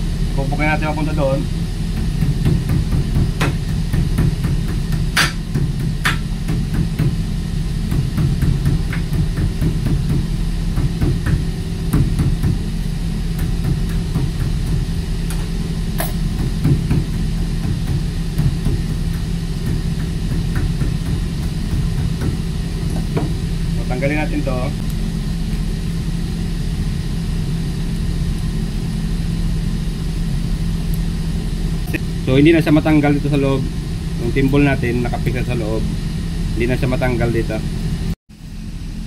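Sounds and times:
low machinery hum: 0.0s - 39.0s
hammer striking steel wire rope: 2.0s - 7.2s.

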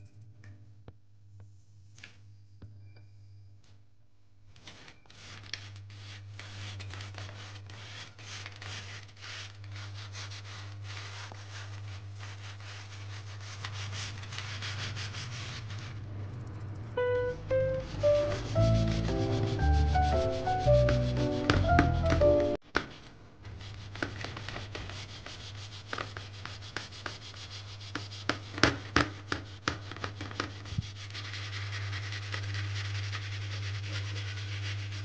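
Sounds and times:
scrubbing a frying pan: 5.1s - 16.0s, 17.6s - 35.0s
background music melody: 16.9s - 22.6s.

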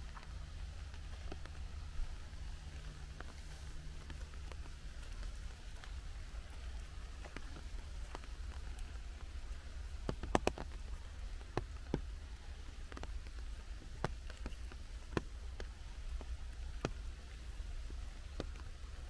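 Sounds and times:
low steady rumble: 0.0s - 19.0s
raindrops dripping and tapping: 0.0s - 19.0s
soft steady hiss: 0.0s - 19.0s.

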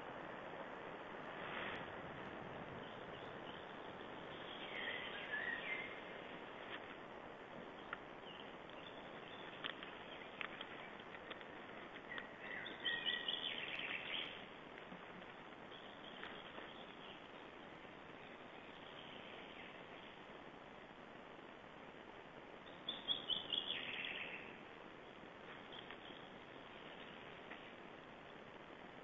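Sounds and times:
steady background hiss: 0.0s - 29.0s
songbirds singing: 2.5s - 29.0s
faint clicks: 7.8s - 12.6s, 25.5s - 26.3s.

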